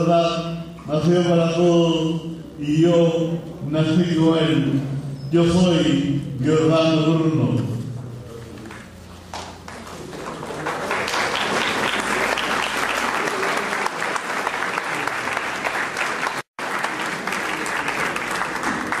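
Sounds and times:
audience applauding: 0:09.4 - 0:19.0.

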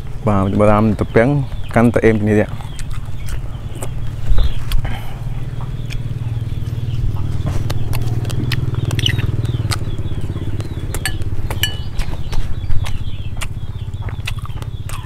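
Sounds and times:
eating sounds: 0:01.0 - 0:15.0
small engine running: 0:03.0 - 0:15.0.

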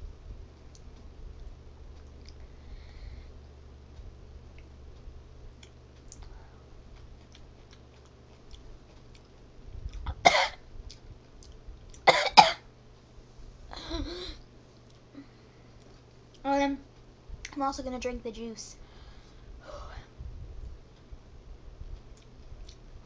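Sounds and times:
girl coughing hard: 0:10.1 - 0:10.6, 0:12.1 - 0:12.6.

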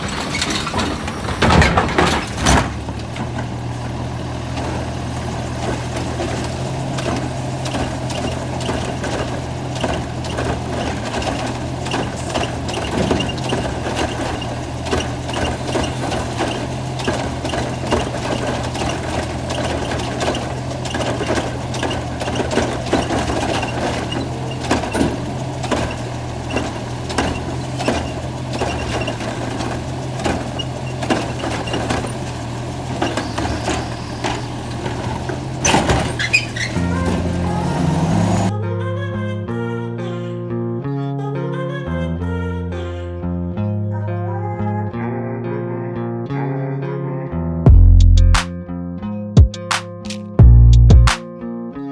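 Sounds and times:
trash cart knocking and rattling: 0:00.0 - 0:38.5
truck engine idling: 0:00.0 - 0:38.5.

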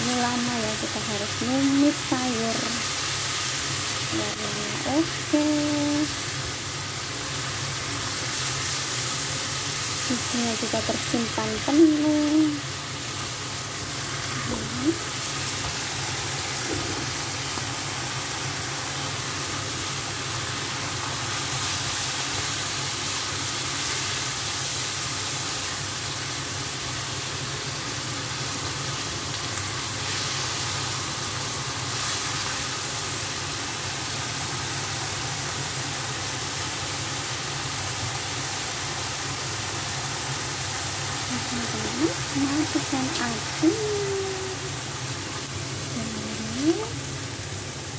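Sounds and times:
vegetables sizzling in a frying pan: 0:00.0 - 0:47.9.

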